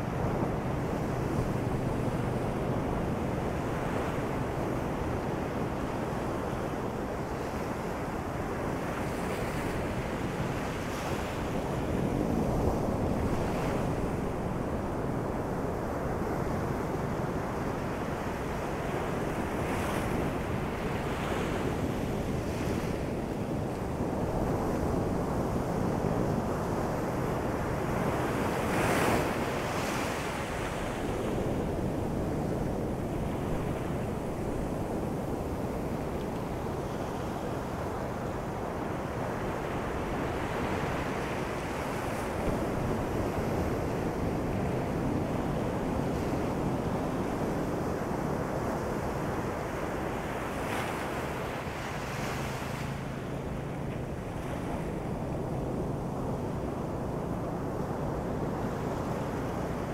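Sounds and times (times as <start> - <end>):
waves breaking on beach: 0.0 - 59.9.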